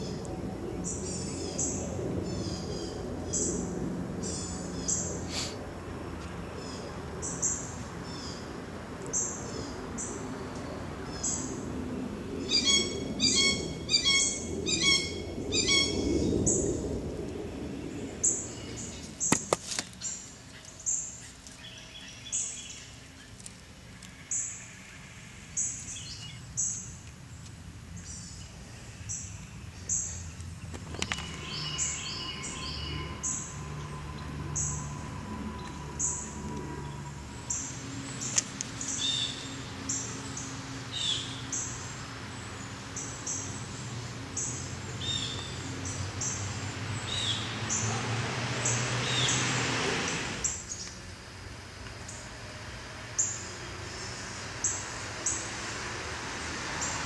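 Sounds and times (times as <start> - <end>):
small birds chirping: 17.8 - 24.7, 25.6 - 33.5.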